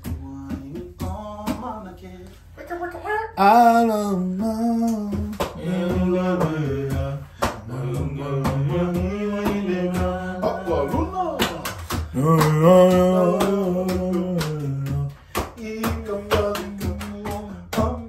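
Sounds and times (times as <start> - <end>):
man singing long held notes: 3.4 - 18.0.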